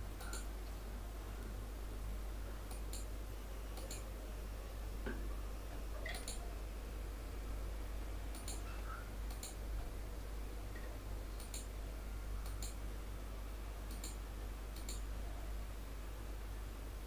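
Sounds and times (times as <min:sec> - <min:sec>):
computer mouse clicking: 0:00.2 - 0:00.5, 0:02.7 - 0:03.1, 0:03.8 - 0:04.1, 0:06.0 - 0:06.4, 0:08.3 - 0:09.6, 0:10.8 - 0:11.7, 0:12.4 - 0:12.8, 0:13.9 - 0:15.1.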